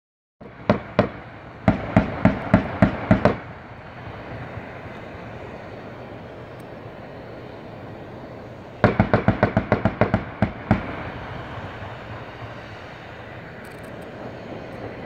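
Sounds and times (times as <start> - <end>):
gunshots: 0.6 - 3.5, 8.8 - 11.0.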